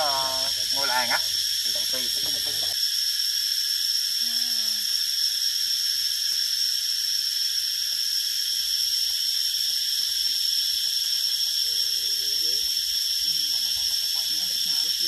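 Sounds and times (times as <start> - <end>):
forest insects droning: 0.0 - 15.0.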